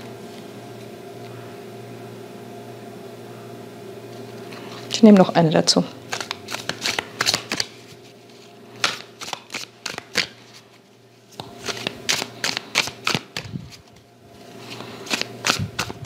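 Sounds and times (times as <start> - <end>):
cards shuffled by hand: 6.0 - 16.0.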